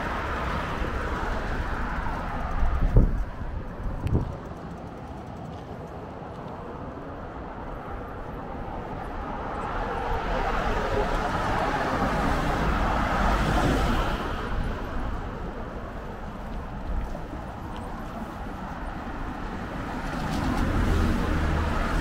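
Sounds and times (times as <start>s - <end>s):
car passing by: 8.5s - 15.5s, 18.0s - 22.0s.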